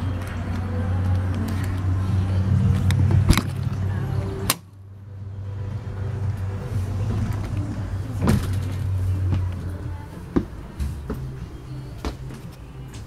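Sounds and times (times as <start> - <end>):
door clunk: 8.2 - 8.9.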